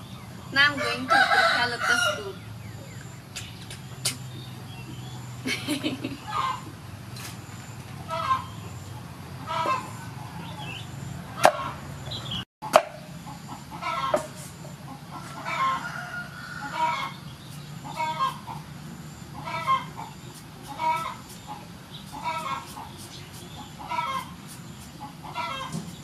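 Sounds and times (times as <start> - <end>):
chickens clucking: 0.7 - 6.8, 7.9 - 26.0.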